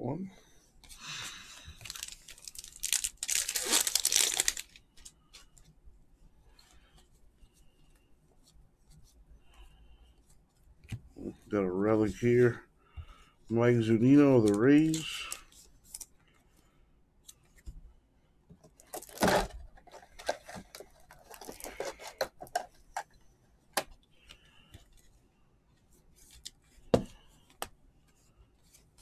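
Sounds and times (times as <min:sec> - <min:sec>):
cards rustling and sliding: 0:13.8 - 0:16.2, 0:18.9 - 0:23.2.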